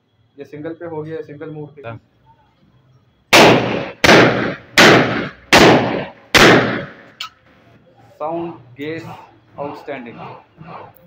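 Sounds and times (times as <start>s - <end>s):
rifle gunshots with echo: 3.3s - 7.1s.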